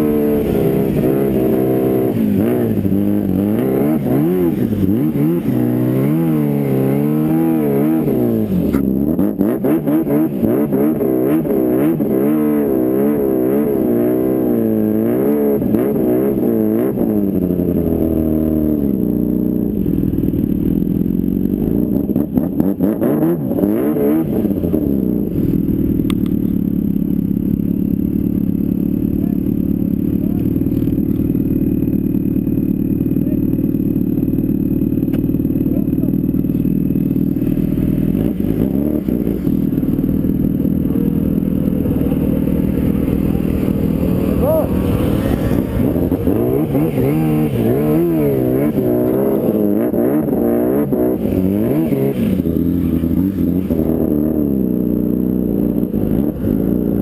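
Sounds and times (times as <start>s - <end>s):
snowmobile engine revving: 0.0s - 19.3s, 35.5s - 57.0s.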